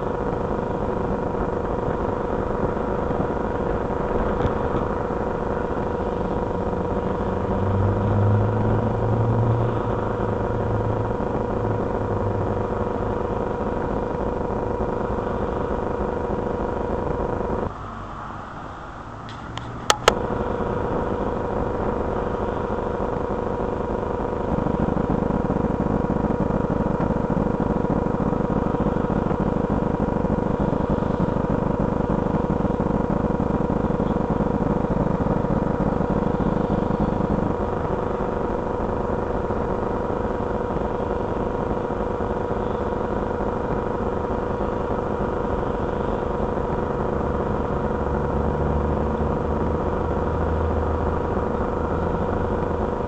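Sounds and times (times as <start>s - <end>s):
heavy rumbling noise: 0.0s - 53.0s
low engine note: 0.0s - 53.0s
steady high hum: 0.0s - 53.0s
cars driving past: 6.6s - 12.8s.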